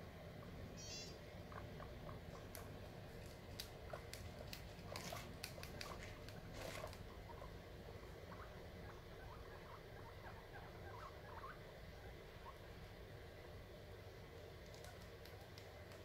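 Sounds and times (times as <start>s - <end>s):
guinea pig squeak: 0.4s - 12.9s, 14.6s - 16.0s
guinea pigs chewing: 1.5s - 16.0s.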